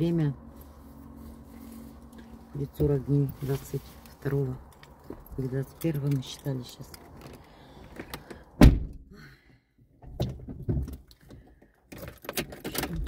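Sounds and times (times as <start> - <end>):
light clicks and knocks of movement: 2.0 - 8.5
heavy thunk in car cabin: 8.6 - 9.0.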